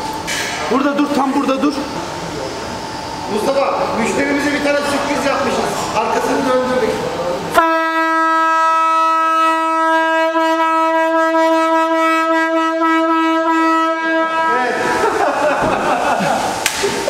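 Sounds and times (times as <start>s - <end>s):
long steady horn note: 7.5s - 14.9s.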